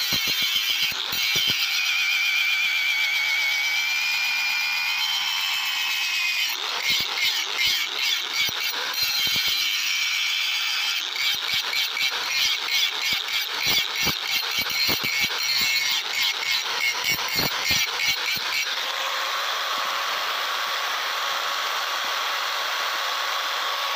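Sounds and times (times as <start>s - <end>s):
grinder disc rasping on steel: 0.0s - 19.1s
angle grinder whining: 0.0s - 23.9s.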